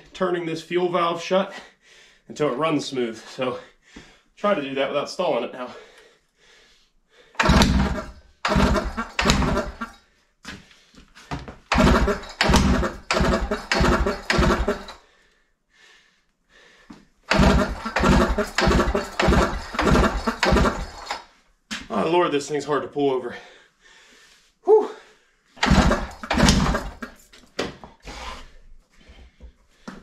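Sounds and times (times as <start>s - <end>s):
two-stroke engine firing in bursts: 7.4s - 10.0s, 11.7s - 15.0s, 17.3s - 21.2s, 25.6s - 27.2s.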